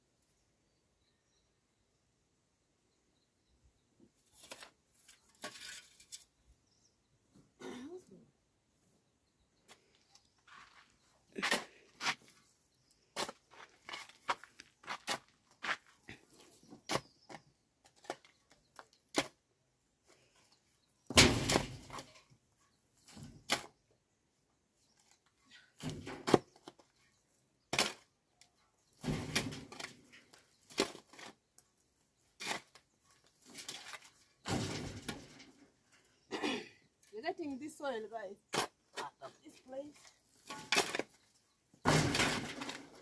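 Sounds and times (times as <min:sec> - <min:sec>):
hoe scraping soil: 0:04.2 - 0:06.4, 0:32.2 - 0:34.2
hoe chopping stony soil: 0:11.4 - 0:12.3, 0:13.1 - 0:15.8, 0:16.6 - 0:18.3, 0:19.0 - 0:19.4, 0:21.1 - 0:22.1, 0:23.1 - 0:23.8, 0:25.8 - 0:26.8, 0:27.7 - 0:28.2, 0:29.0 - 0:31.4, 0:32.3 - 0:35.2, 0:38.5 - 0:39.0, 0:40.3 - 0:41.2, 0:41.8 - 0:43.0.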